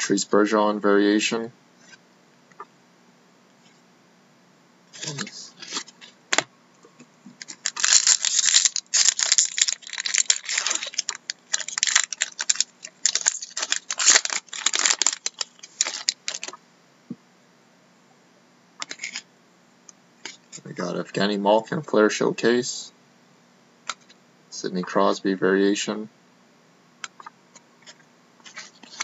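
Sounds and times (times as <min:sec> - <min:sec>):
foil wrapper tearing and crinkling: 0:07.4 - 0:16.6, 0:18.8 - 0:19.2.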